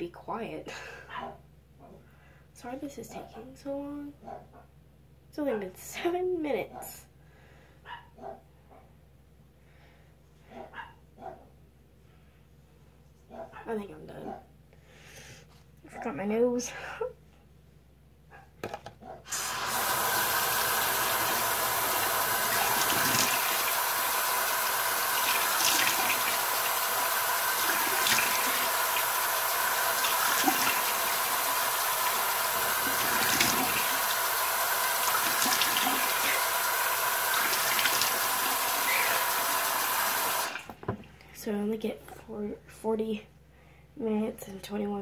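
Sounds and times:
water splashing on face: 19.3 - 40.7
tap water running into sink: 19.3 - 41.0.

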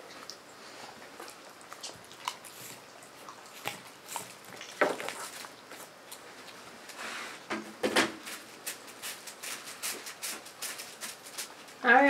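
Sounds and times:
dog licking and chewing: 0.0 - 6.7.

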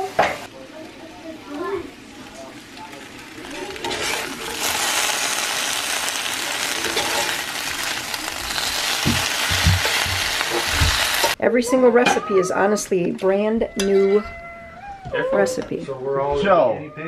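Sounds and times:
potatoes and onion sizzling: 0.0 - 13.2
spatula knocking in a pan: 8.9 - 11.1.

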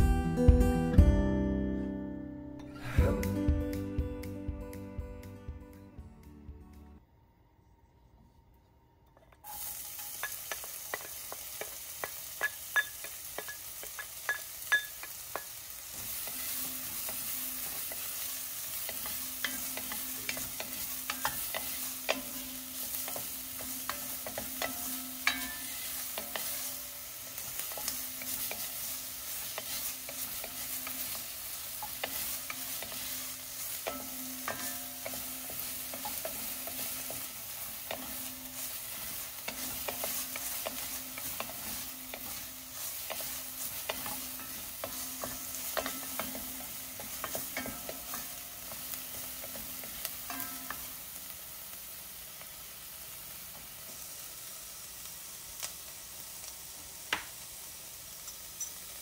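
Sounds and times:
onions sizzling in hot oil: 9.4 - 59.0
wooden spatula scraping pot: 33.8 - 48.8.

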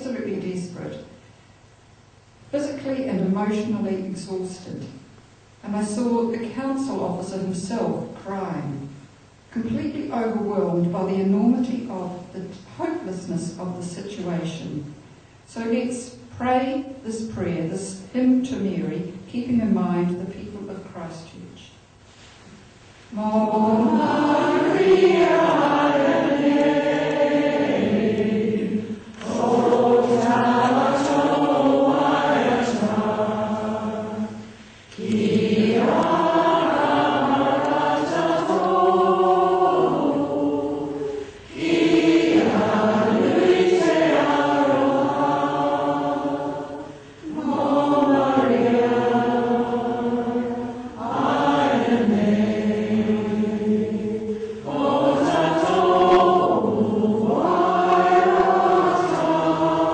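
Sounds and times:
group singing a hymn: 23.1 - 59.9.

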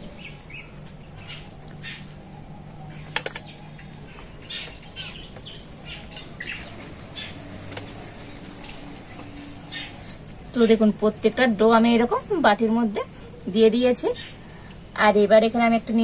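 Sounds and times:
birds chirping: 0.0 - 11.0, 13.1 - 14.7.

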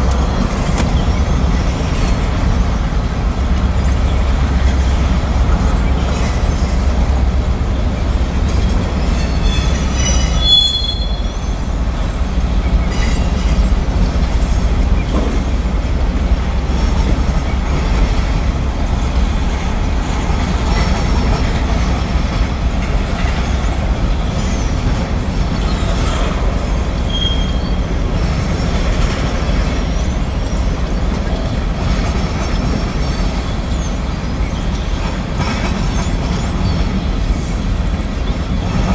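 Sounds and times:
train wheels rumbling on rail: 0.0 - 38.9
high-pitched wheel squeals: 9.0 - 11.7, 27.1 - 27.9.

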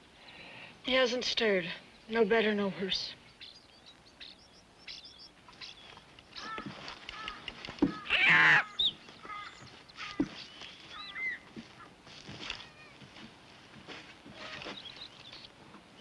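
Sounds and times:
birds chirping and whistling: 3.2 - 11.5, 14.4 - 16.0.

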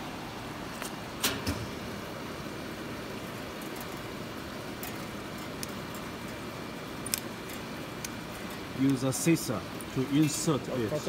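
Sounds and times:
factory room noise: 0.0 - 11.0
faint clicks of scissors and wire: 7.0 - 9.0.

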